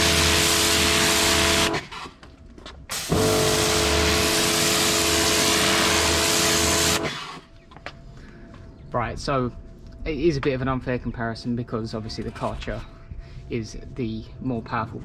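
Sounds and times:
pressure washer motor humming: 0.0s - 2.0s, 2.9s - 7.4s.

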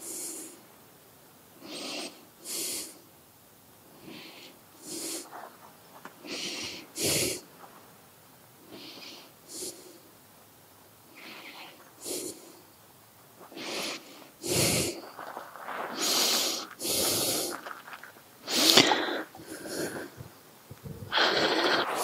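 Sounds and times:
air squelching from rubber boot: 13.5s - 22.0s.

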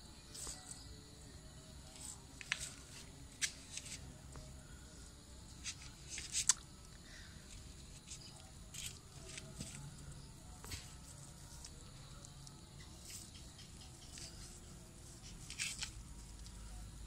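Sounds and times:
faint low hum: 0.0s - 17.0s
kittens playing clicks and scratches: 5.5s - 6.8s, 7.4s - 16.8s.

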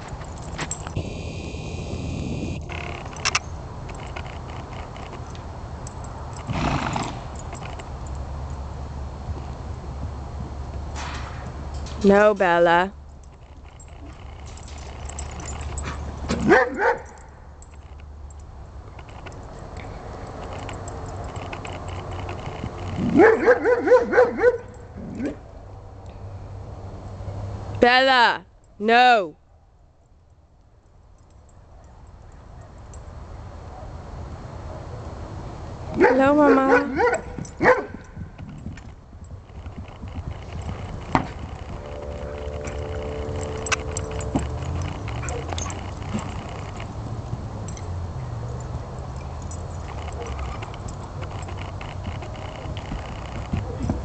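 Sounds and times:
hoof thuds and clicks: 0.0s - 1.2s, 2.2s - 24.9s, 37.0s - 54.0s
wind rumble on microphone: 0.0s - 12.8s, 34.0s - 54.0s
dog barking: 16.5s - 17.1s, 23.1s - 25.3s, 36.0s - 38.0s.

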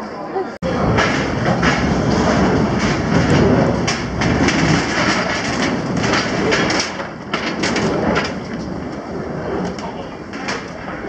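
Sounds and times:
rolling suitcase wheels: 0.6s - 11.0s.

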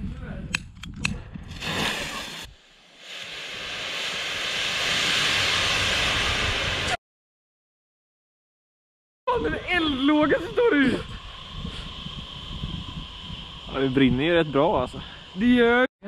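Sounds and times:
rocket propellant burning hiss: 1.4s - 7.0s, 9.6s - 15.9s.

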